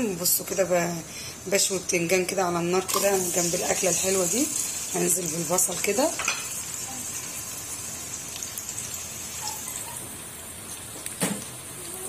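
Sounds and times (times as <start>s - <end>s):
onions sizzling in oil: 0.0s - 12.0s.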